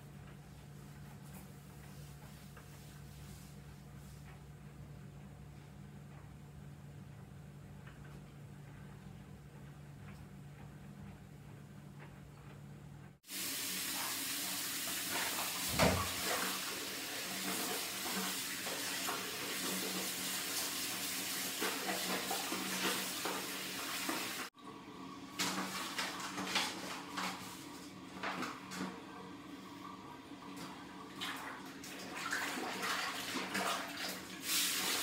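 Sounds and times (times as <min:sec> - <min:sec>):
tap water running into sink: 0:13.3 - 0:24.5
water sloshing and splashing: 0:14.8 - 0:24.5, 0:30.4 - 0:35.0
rag scrubbed in water: 0:31.2 - 0:35.0.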